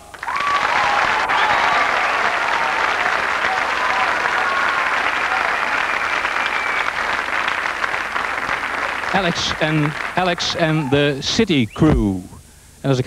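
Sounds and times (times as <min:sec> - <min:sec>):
audience applauding: 0:00.0 - 0:11.2
voices calling out: 0:00.8 - 0:07.1, 0:08.6 - 0:12.4.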